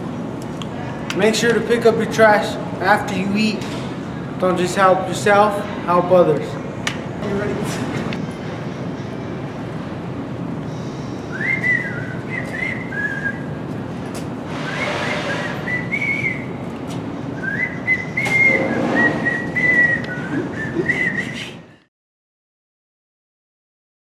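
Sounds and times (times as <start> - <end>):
steady background hum: 0.0 - 21.9
person whistling a tune: 11.3 - 13.5, 14.8 - 16.5, 17.4 - 21.6.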